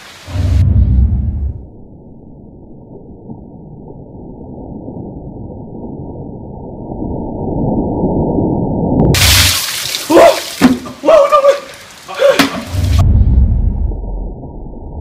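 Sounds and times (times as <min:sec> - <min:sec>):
water pouring and splashing: 0:09.1 - 0:14.6.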